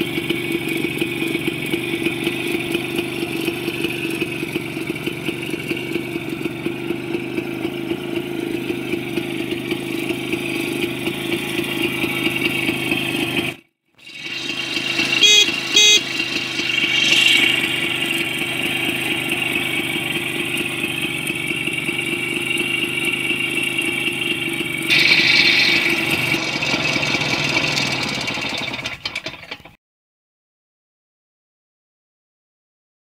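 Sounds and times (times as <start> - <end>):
two-stroke engine idling: 0.0 - 29.8
short horn beeps: 15.2 - 16.2.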